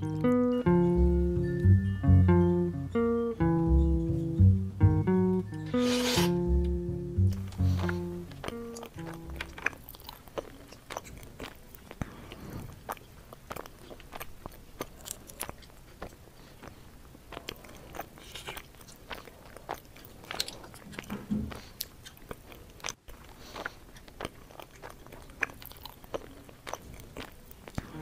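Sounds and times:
chewing: 0:07.3 - 0:28.0.

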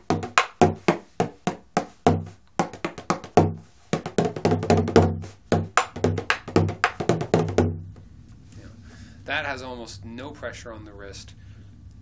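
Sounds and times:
frame drum beaten in steady rhythm: 0:00.0 - 0:07.8.

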